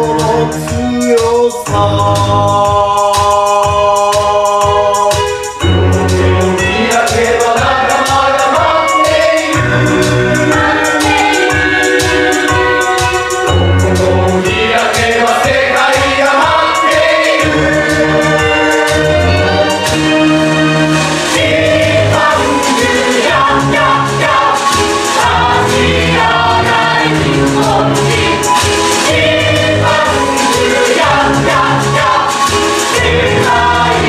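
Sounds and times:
instrumental accompaniment with bass: 0:00.0 - 0:34.0
cast singing in chorus: 0:06.7 - 0:13.1, 0:14.2 - 0:19.8, 0:21.4 - 0:34.0.

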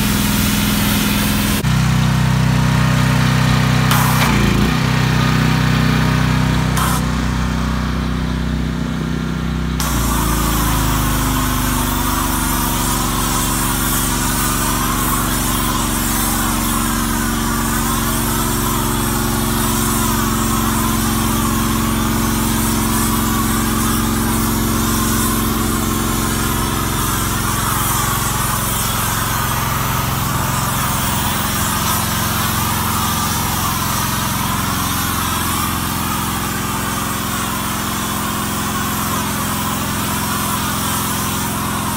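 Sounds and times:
water jet hissing: 0:00.0 - 0:01.6, 0:03.7 - 0:05.6, 0:06.4 - 0:07.2, 0:09.8 - 0:41.9
pressure washer engine running: 0:00.0 - 0:41.9.

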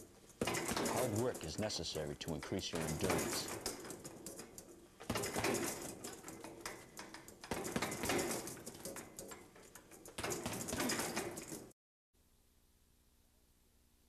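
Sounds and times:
punches thudding on heavy bag: 0:00.4 - 0:01.2, 0:05.1 - 0:06.0, 0:07.4 - 0:08.7.

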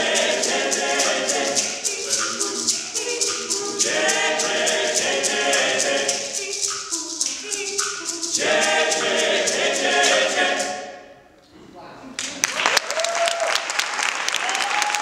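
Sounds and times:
fast percussive ticking: 0:00.0 - 0:11.0
male ensemble singing a cappella: 0:00.0 - 0:11.2.

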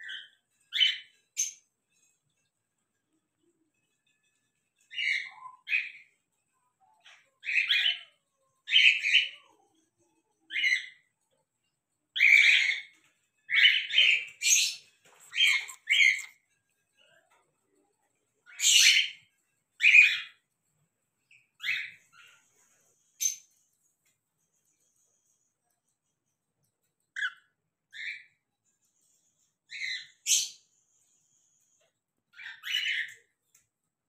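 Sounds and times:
cockatiel chirping: 0:07.4 - 0:08.1, 0:10.5 - 0:11.0, 0:12.2 - 0:16.4, 0:18.4 - 0:19.2, 0:19.8 - 0:20.4, 0:21.6 - 0:22.4, 0:27.1 - 0:28.3, 0:29.7 - 0:30.6, 0:32.3 - 0:33.3.

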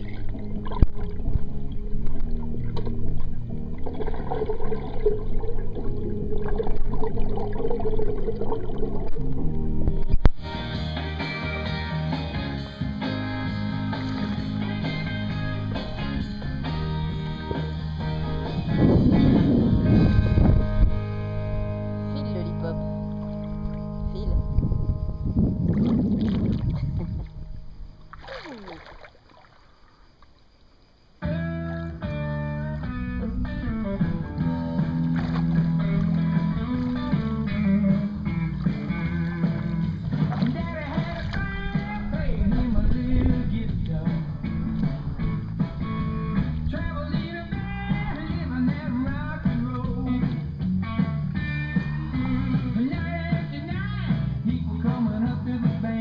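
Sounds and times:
pool water splashing: 0:00.0 - 0:09.8, 0:13.5 - 0:15.9, 0:28.0 - 0:30.8, 0:34.2 - 0:42.4, 0:46.4 - 0:53.7
muffled underwater sloshing: 0:00.0 - 0:10.4, 0:25.3 - 0:30.7, 0:33.2 - 0:53.6
guitar music: 0:00.0 - 0:25.3, 0:31.2 - 0:54.4.

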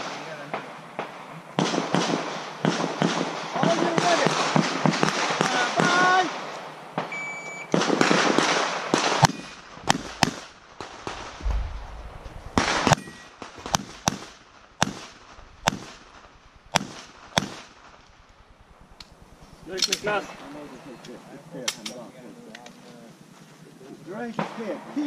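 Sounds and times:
pistol shots: 0:07.7 - 0:11.6, 0:12.5 - 0:16.1, 0:16.7 - 0:17.8.

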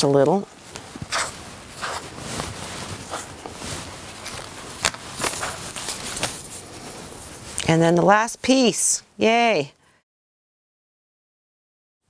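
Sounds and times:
paper and fabric rustling: 0:00.0 - 0:07.8.

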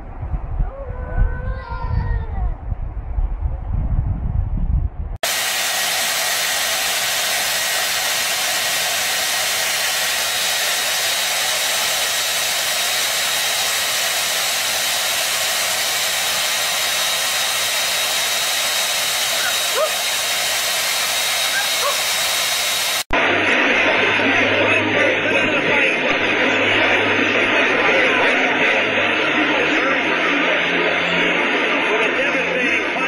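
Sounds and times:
hair dryer blowing: 0:05.2 - 0:25.2, 0:25.9 - 0:32.0.

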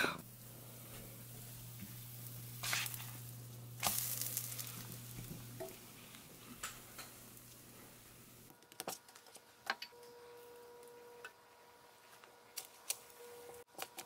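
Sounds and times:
steady low hum: 0:00.0 - 0:08.5
batter sizzling in a pan: 0:00.2 - 0:08.5
spatula scraping pan: 0:01.8 - 0:03.3.

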